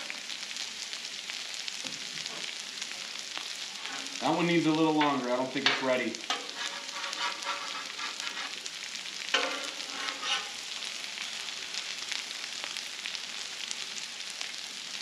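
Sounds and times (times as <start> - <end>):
potatoes sizzling on griddle: 0.0 - 15.0
metal utensils scraping griddle: 3.8 - 4.4, 5.0 - 8.7, 9.3 - 10.8.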